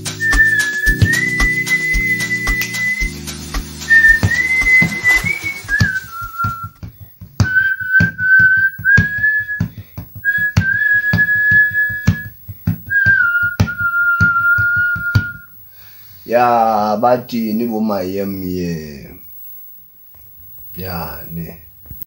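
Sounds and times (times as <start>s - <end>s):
man whistling a slow tune: 0.0s - 6.8s, 7.4s - 15.6s.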